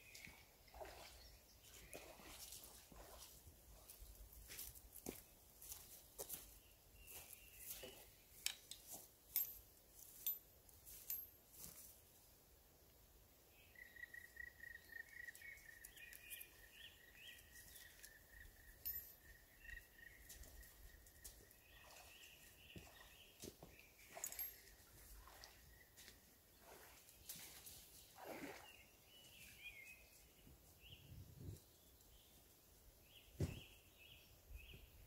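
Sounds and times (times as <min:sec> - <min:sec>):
small chirps: 0:14.0 - 0:22.0.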